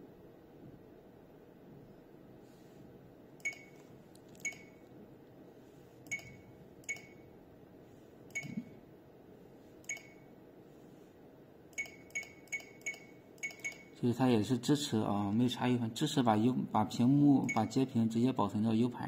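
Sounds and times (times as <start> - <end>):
short electronic key beeps: 3.4 - 3.8, 4.4 - 4.8, 6.1 - 7.2, 8.3 - 8.7, 9.9 - 10.2, 11.8 - 14.0.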